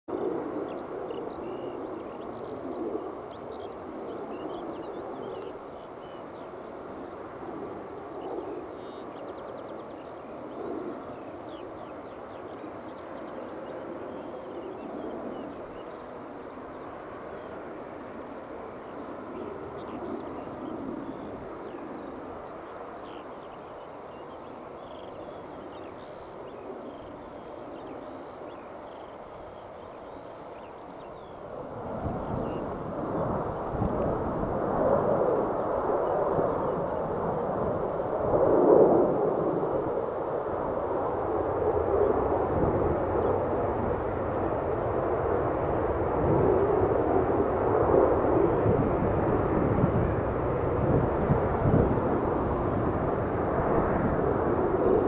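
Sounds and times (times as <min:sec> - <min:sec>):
distant jet engines humming: 0:00.1 - 0:55.0
small birds chirping: 0:00.6 - 0:18.2, 0:18.8 - 0:31.5.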